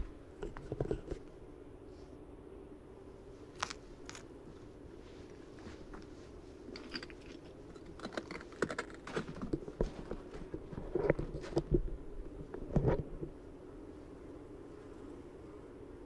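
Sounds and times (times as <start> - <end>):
faint steady hum: 0.0 - 16.0
footsteps crunching on gravel: 3.6 - 4.2.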